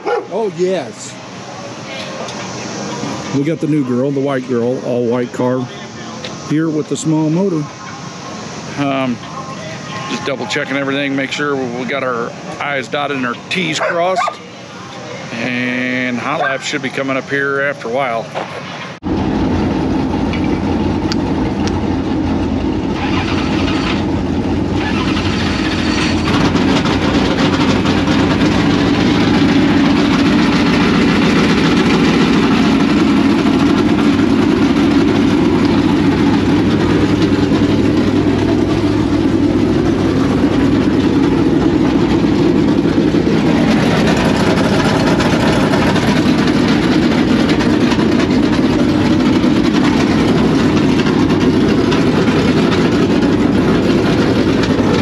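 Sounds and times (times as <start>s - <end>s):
race car engines roaring: 0.0s - 55.0s.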